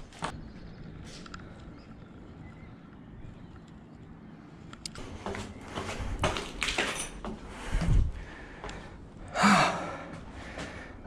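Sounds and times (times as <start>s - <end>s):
footsteps on concrete stairs: 5.0s - 9.0s, 9.9s - 10.9s.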